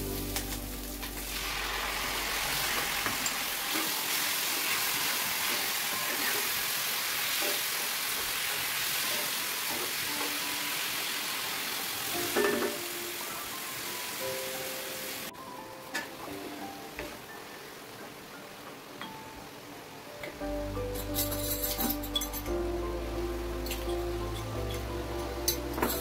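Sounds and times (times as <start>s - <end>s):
vegetables sizzling in a skillet: 0.0s - 18.0s.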